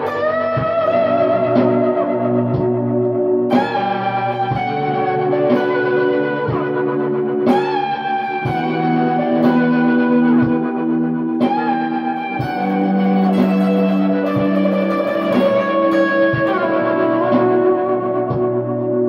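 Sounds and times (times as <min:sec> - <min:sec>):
clean electric guitar with reverb: 0:00.0 - 0:19.0
guitar strum: 0:00.0 - 0:19.0.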